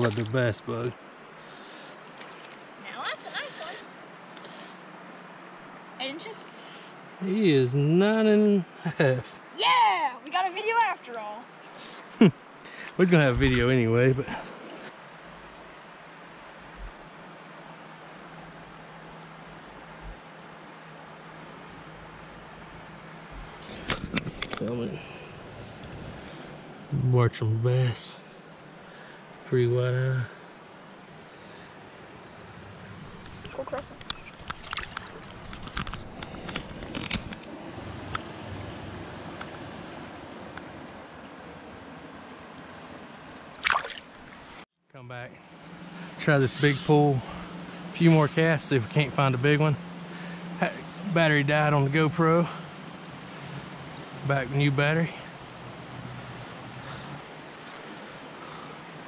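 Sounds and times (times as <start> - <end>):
insects trilling: 0.0 - 59.0
steady hiss: 0.0 - 59.0
shallow stream rushing: 33.0 - 36.8, 43.5 - 44.6.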